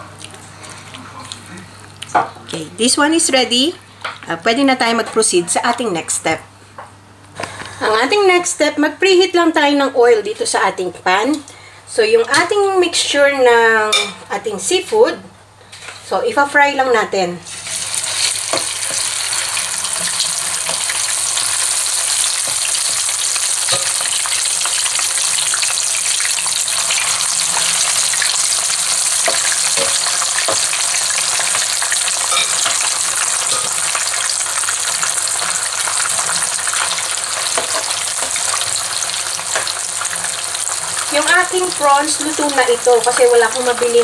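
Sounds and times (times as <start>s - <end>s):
deep-frying sizzle in oil: 17.5s - 44.0s.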